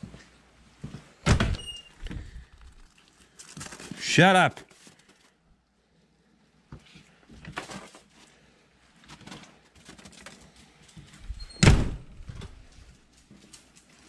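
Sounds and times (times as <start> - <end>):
door shutting with thud: 1.2 - 2.2, 11.4 - 12.6
door opening: 1.2 - 2.3, 11.3 - 12.7.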